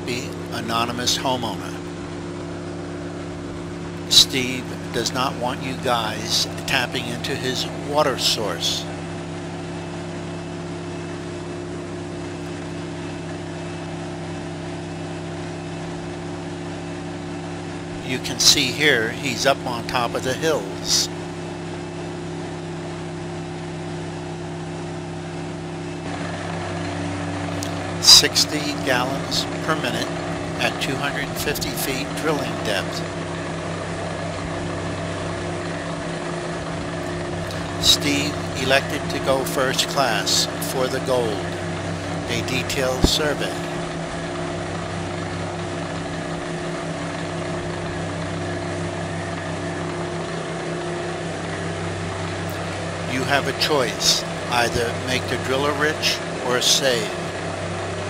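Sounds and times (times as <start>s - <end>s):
drilling rig engine drone: 0.0s - 58.0s.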